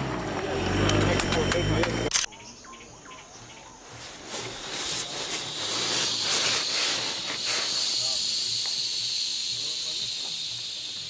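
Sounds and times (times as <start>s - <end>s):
steady high hiss: 3.9s - 11.0s.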